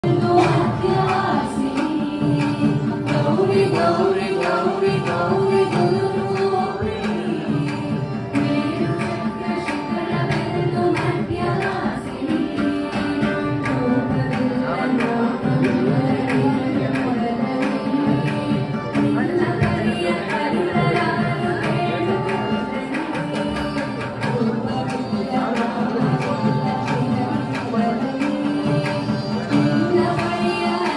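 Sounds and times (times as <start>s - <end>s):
girl singing into microphone: 0.0s - 30.9s
steady percussion beat: 0.0s - 30.9s
violin: 0.0s - 30.9s
women singing along: 0.0s - 30.9s.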